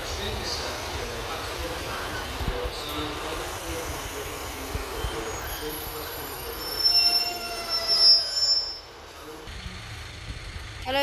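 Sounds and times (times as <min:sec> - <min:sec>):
train rumbling past: 0:00.0 - 0:11.0
wheels squealing against rails: 0:02.1 - 0:09.4.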